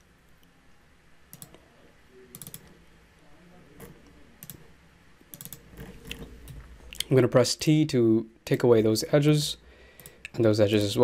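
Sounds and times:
mouse and keyboard clicks: 2.3 - 2.7, 5.3 - 6.6.

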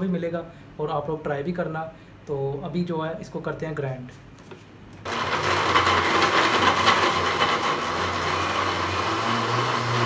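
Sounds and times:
blender grinding: 5.1 - 10.0.

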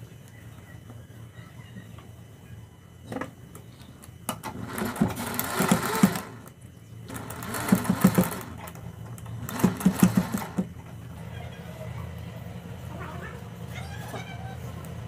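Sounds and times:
sewing machine stitching: 4.4 - 6.5, 7.1 - 10.7.

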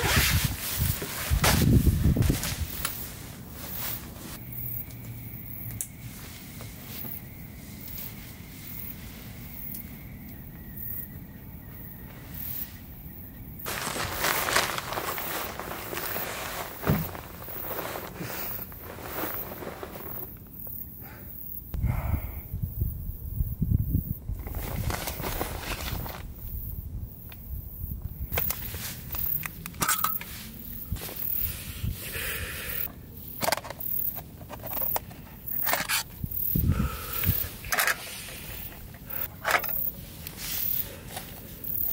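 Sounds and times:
loud rustling noise: 0.0 - 4.4, 13.6 - 20.3
insects chirping: 0.0 - 41.9.

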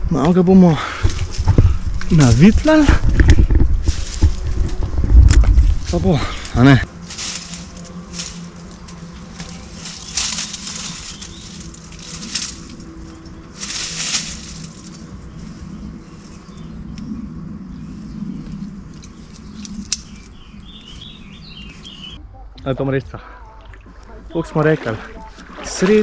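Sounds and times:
rustling: 1.1 - 16.6.

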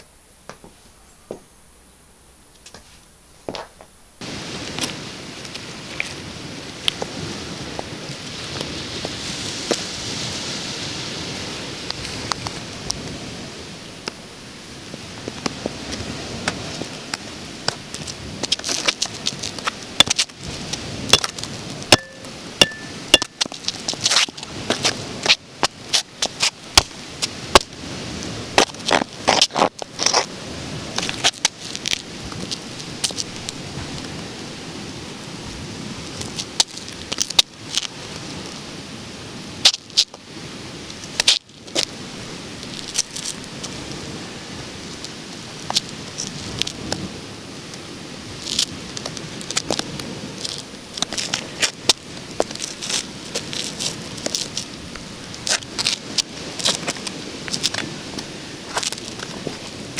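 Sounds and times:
steady outdoor hiss: 0.0 - 59.9.

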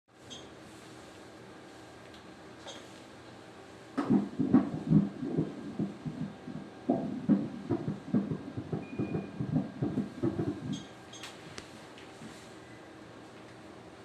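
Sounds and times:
fast fetal heartbeat on doppler: 4.0 - 10.9.

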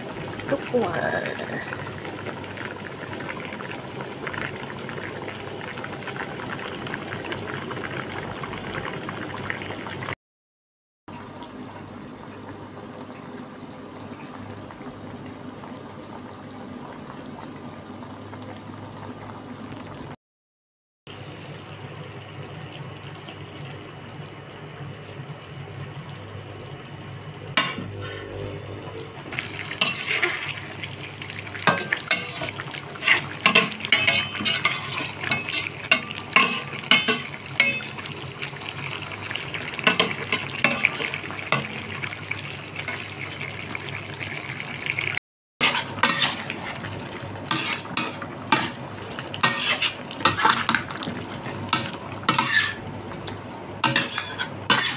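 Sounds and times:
food simmering sizzle: 0.0 - 10.2, 11.1 - 20.2, 21.1 - 54.9
metal spatula scraping wok: 27.6 - 28.7, 29.8 - 30.6, 31.8 - 35.8, 36.4 - 37.4, 39.9 - 41.2, 45.6 - 46.6, 47.5 - 48.8, 49.4 - 50.9, 51.8 - 52.8, 53.8 - 54.9.

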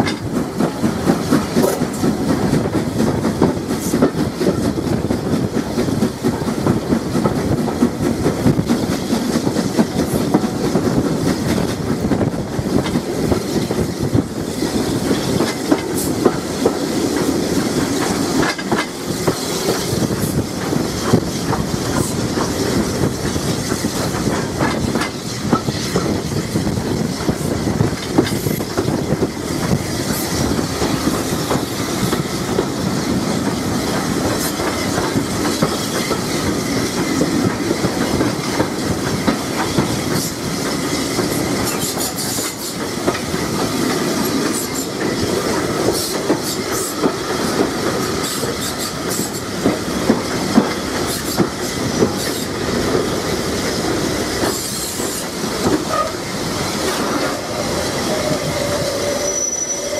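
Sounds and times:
train wheels clicking over rail joints: 0.0 - 59.9.

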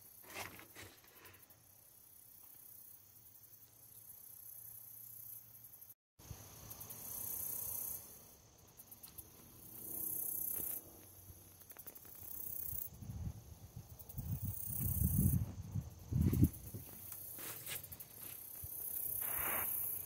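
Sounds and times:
insects singing: 3.9 - 20.0.

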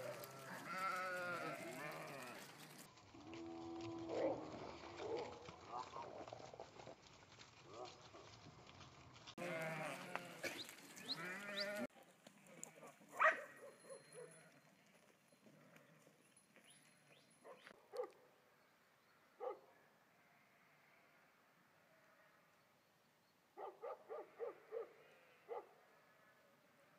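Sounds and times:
sheep bleating: 0.0 - 2.8, 9.4 - 13.0, 20.1 - 22.4.

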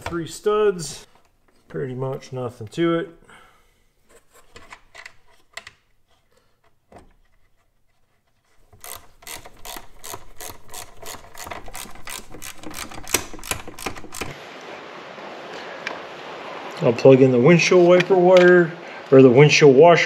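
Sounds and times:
hand ratchet clicking: 8.7 - 14.4.

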